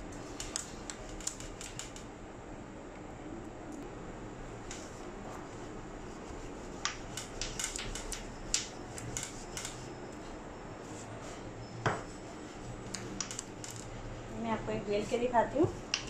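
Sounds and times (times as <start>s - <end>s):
low steady hum: 0.0s - 16.0s
rolling pin knocking on stone counter: 11.8s - 12.1s.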